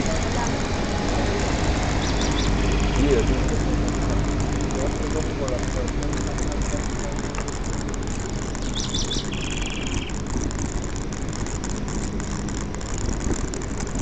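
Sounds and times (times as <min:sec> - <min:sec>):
road noise: 0:00.0 - 0:14.0
bird calling and trilling: 0:01.9 - 0:03.4, 0:08.4 - 0:10.2.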